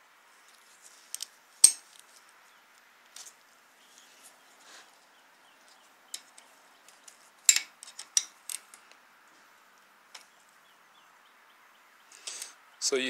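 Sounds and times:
metal clicks and clinks: 7.5 - 8.8.

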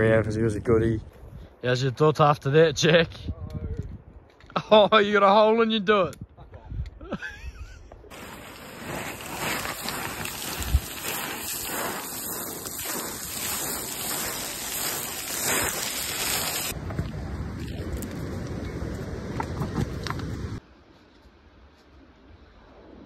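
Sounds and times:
crunching and rattling gravel: 8.1 - 20.6.

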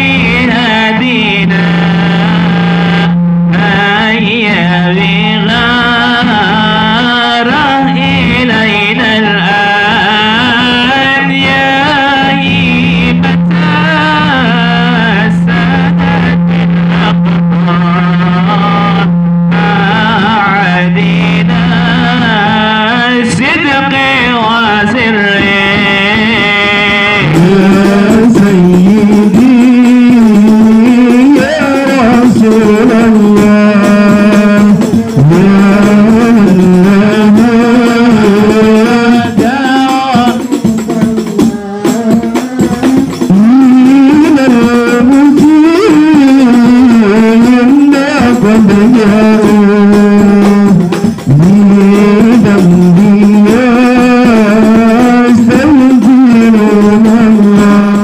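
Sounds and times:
frame drums beating: 0.0 - 58.0
man singing into a microphone: 0.0 - 58.0.

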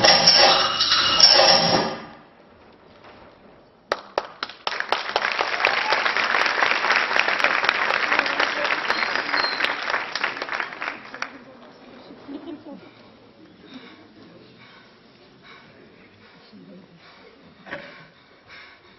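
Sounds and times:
loud sound: 0.0 - 3.5
audience applause: 3.9 - 14.1.

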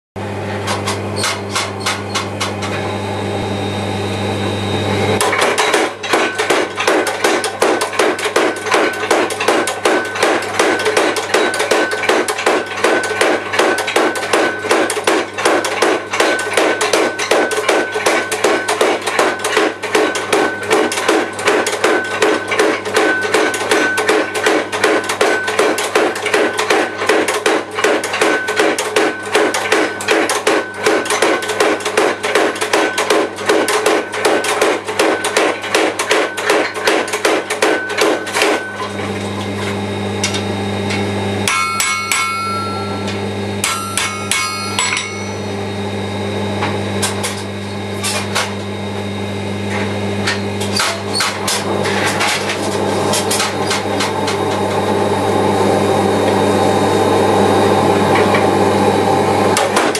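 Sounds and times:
low hum: 0.2 - 6.4
power hammer striking hot steel: 5.1 - 39.1, 40.2 - 45.6, 50.2 - 54.8, 59.5 - 59.9
thin steady ringing tone: 41.4 - 45.7.

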